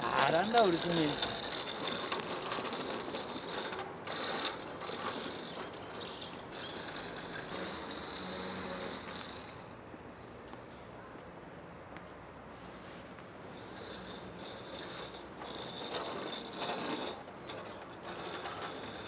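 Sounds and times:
tyres rolling on wet paving: 0.0 - 9.6, 13.6 - 19.0.

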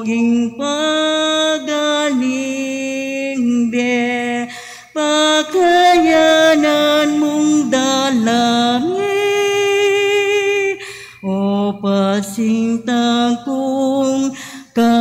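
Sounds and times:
slow church hymn singing: 0.0 - 15.0.

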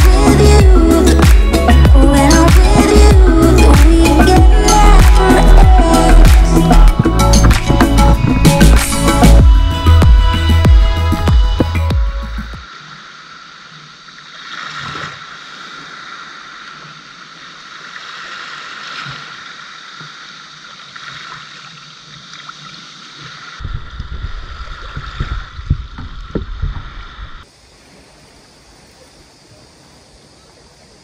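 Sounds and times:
small waves lapping on beach: 0.0 - 7.7, 12.6 - 31.0
wind rumble on microphone: 0.0 - 11.9, 23.6 - 27.5.

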